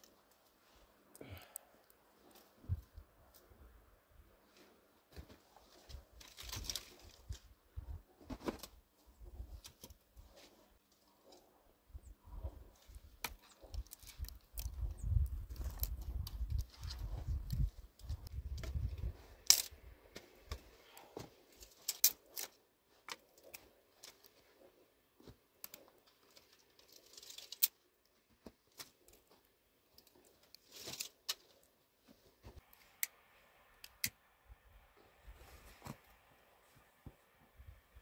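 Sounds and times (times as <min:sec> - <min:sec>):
twigs clicking and snapping: 0:06.2 - 0:07.4, 0:12.8 - 0:19.8, 0:21.5 - 0:24.4, 0:25.6 - 0:31.7, 0:33.7 - 0:34.2
rustling: 0:19.0 - 0:33.0.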